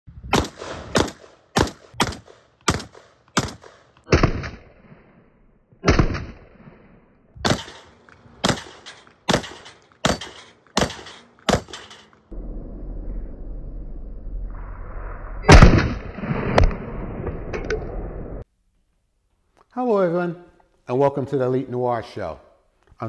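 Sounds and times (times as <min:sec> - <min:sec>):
shotgun shots: 0:00.3 - 0:04.8, 0:05.8 - 0:06.6, 0:07.4 - 0:12.1, 0:15.5 - 0:16.8.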